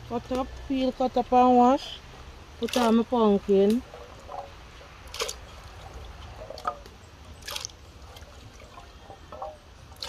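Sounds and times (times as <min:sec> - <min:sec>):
water dripping: 0:02.0 - 0:10.0
pieces splashing into water: 0:02.6 - 0:06.8.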